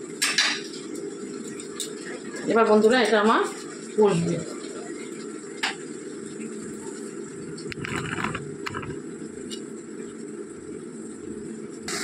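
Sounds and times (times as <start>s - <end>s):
sharp pops and crackles: 7.5s - 9.6s.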